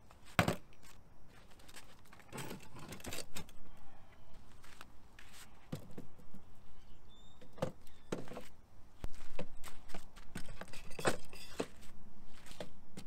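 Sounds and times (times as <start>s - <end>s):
fishing rods clattering on metal tubes: 2.2s - 3.6s, 10.4s - 11.7s.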